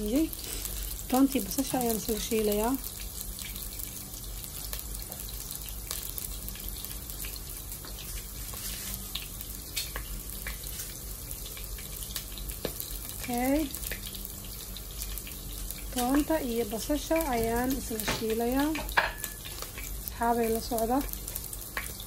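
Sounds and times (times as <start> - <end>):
onion and garlic sizzling in oil: 0.0 - 22.0.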